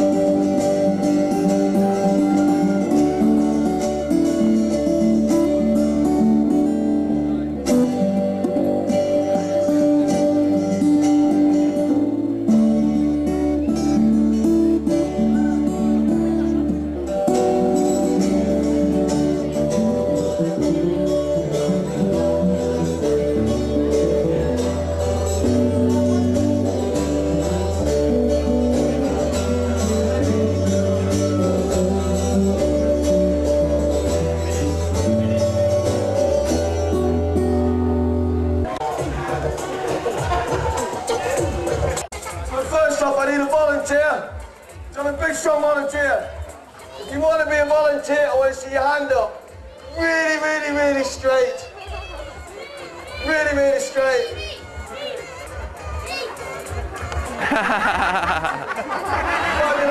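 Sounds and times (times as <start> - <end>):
bass line: 0.0 - 42.2
acoustic guitars strumming and picking: 0.0 - 45.3, 52.3 - 59.9
percussion beat: 38.7 - 42.5.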